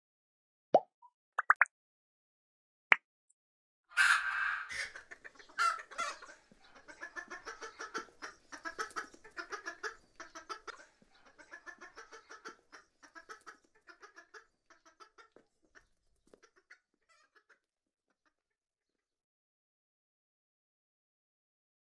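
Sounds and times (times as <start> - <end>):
chickens clucking: 4.0 - 18.4.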